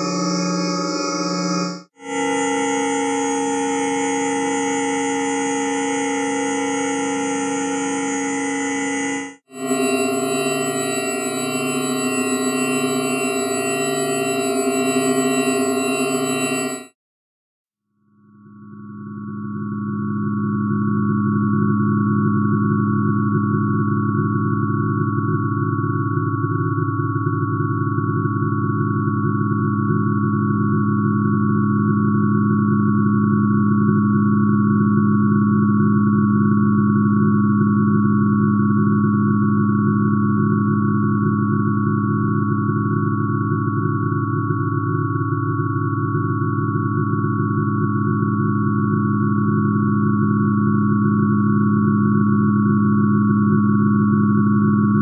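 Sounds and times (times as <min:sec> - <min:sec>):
synthesized tones held chord: 0:00.0 - 0:16.9
synthesized sine tone chord: 0:00.0 - 0:17.0, 0:18.2 - 0:55.0.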